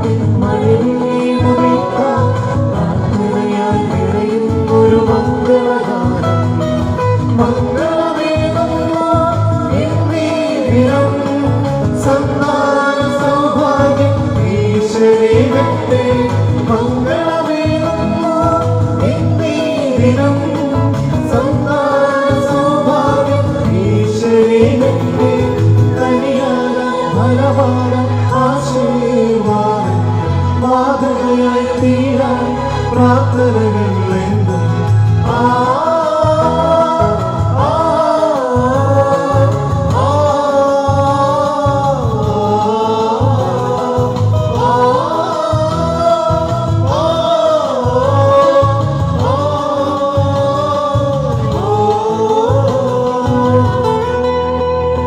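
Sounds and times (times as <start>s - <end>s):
electronic keyboard: 0.0s - 55.0s
man and woman singing: 0.0s - 55.0s.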